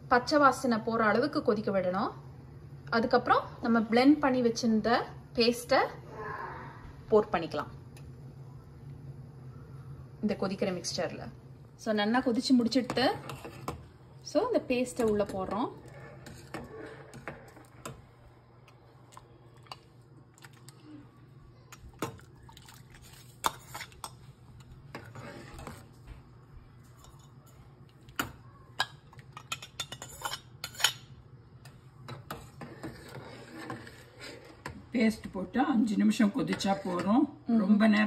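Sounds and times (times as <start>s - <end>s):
metal spoon scraping pot: 12.6s - 13.8s, 14.7s - 18.0s, 24.9s - 25.8s, 29.4s - 31.0s, 32.1s - 34.8s.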